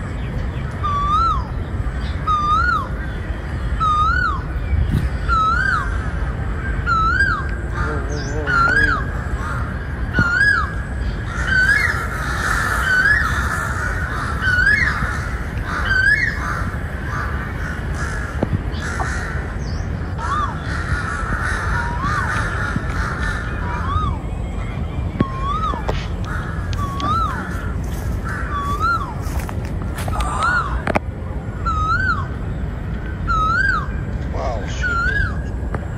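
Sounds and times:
crows cawing: 6.9s - 24.1s, 26.2s - 29.4s.

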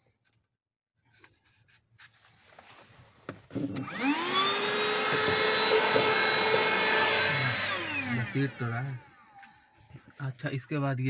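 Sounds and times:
vacuum cleaner motor whining: 3.5s - 10.1s.

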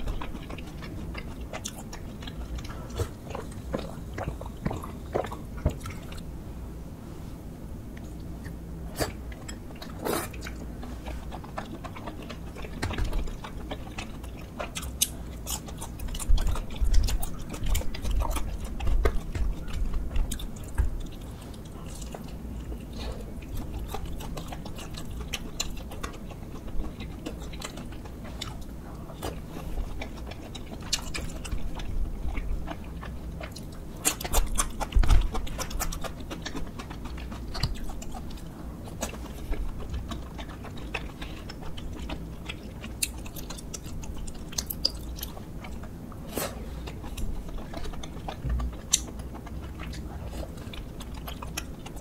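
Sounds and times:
chewing and biting: 0.0s - 6.3s, 7.9s - 52.0s
wet mouth clicks: 33.0s - 52.0s.

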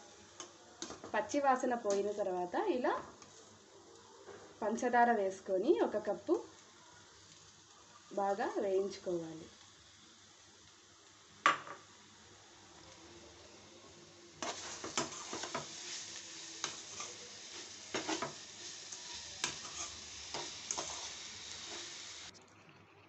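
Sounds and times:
food sizzling in a pan: 0.0s - 23.0s
metal spoon scraping a pan: 14.4s - 22.0s.

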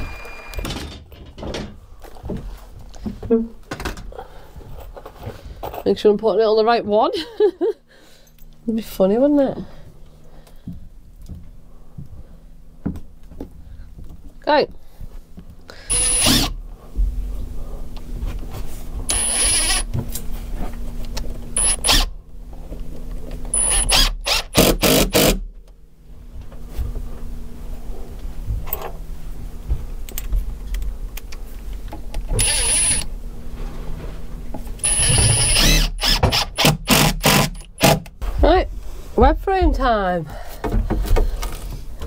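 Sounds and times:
cordless drill whining: 0.0s - 0.9s, 15.8s - 16.6s, 19.1s - 19.9s, 21.6s - 22.1s, 23.5s - 25.4s, 32.4s - 33.1s, 34.8s - 38.0s.

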